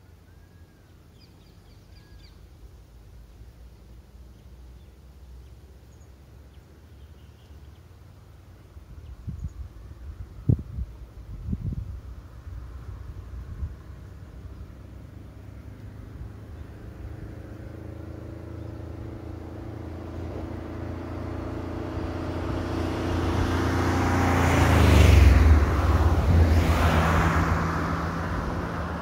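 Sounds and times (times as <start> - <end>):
light truck engine passing: 9.7 - 29.0
car passing: 12.0 - 29.0.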